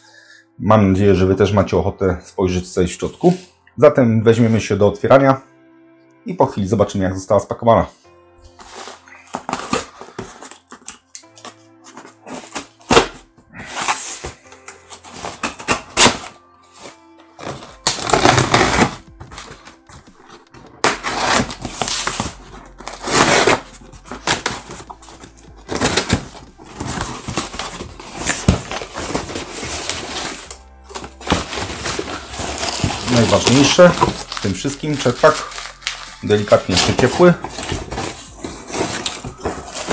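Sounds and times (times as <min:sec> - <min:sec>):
packing tape ripping off cardboard: 0:08.7 - 0:20.0, 0:20.8 - 0:39.9
cardboard box flaps tearing: 0:17.4 - 0:19.6, 0:20.8 - 0:24.8, 0:25.7 - 0:34.5, 0:36.7 - 0:39.9.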